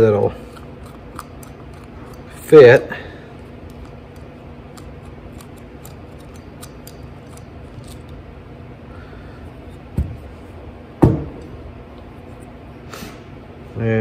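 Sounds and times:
steady low hum: 0:00.0 - 0:14.0
small metal parts clicking: 0:03.7 - 0:08.2.

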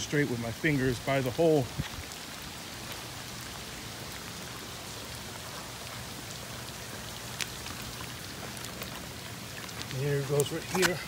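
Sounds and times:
rain falling on pool water: 0:00.0 - 0:11.0.

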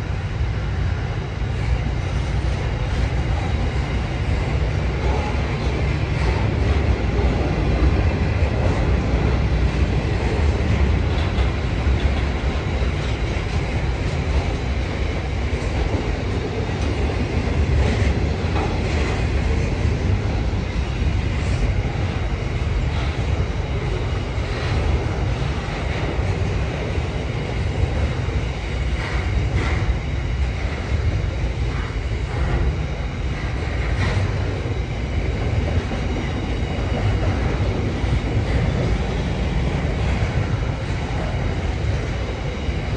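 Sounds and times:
freight train rumbling past: 0:00.0 - 0:42.9
wheels clacking over rail joints: 0:05.0 - 0:14.8.

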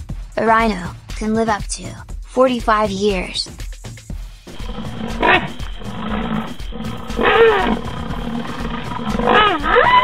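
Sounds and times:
steady background drone: 0:04.5 - 0:10.0
wild animal cries: 0:04.6 - 0:10.0.

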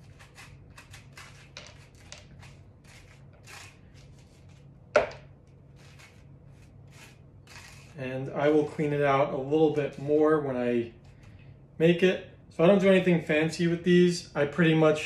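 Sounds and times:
metal scoop scraping squash: 0:00.0 - 0:04.6, 0:05.7 - 0:08.9, 0:09.6 - 0:10.4.

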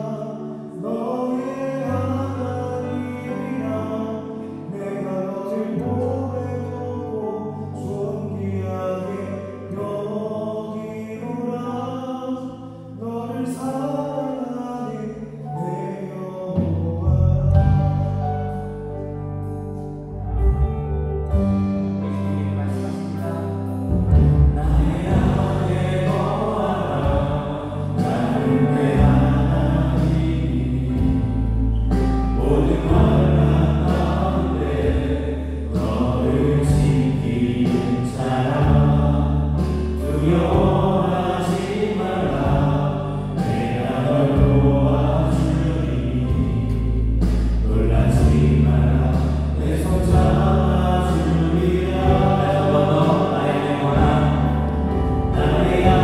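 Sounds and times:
live worship band playing: 0:00.0 - 0:56.0
bass guitar line: 0:16.6 - 0:56.0.

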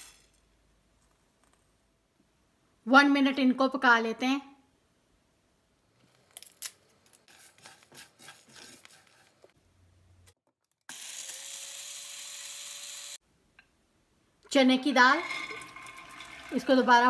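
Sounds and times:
blender grinding: 0:10.9 - 0:13.2, 0:15.0 - 0:16.9.

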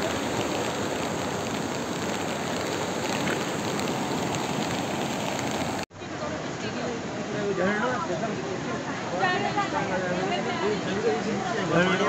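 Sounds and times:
rain falling: 0:00.0 - 0:05.9
river rushing: 0:00.0 - 0:11.8.

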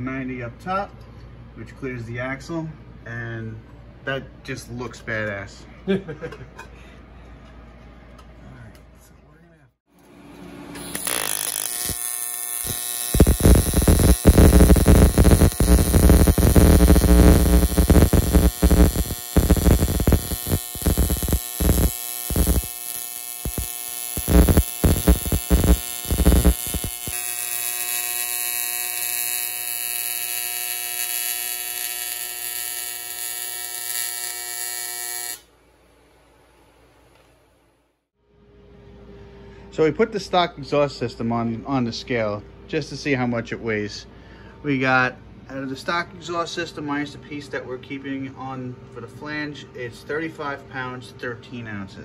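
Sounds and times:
welding arc buzzing and crackling: 0:10.8 - 0:35.5.

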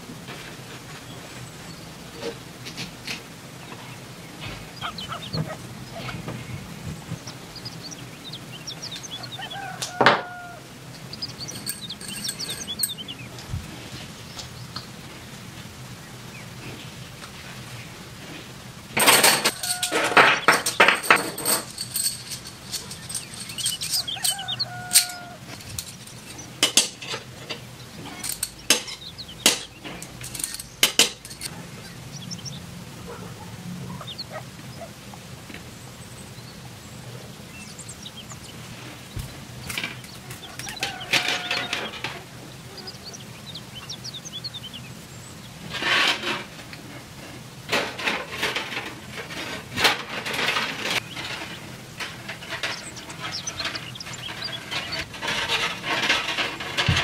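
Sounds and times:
copper tubes clinking: 0:11.0 - 0:13.5, 0:19.0 - 0:31.5, 0:47.7 - 0:57.0.

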